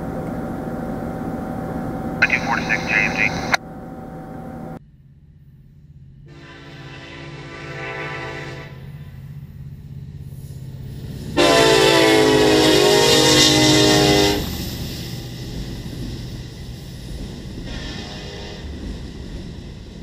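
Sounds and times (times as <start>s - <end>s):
diesel engine drone: 0.0s - 4.8s
freight cars rolling by: 0.0s - 4.8s
locomotive horn blast: 6.3s - 9.0s, 11.4s - 14.6s.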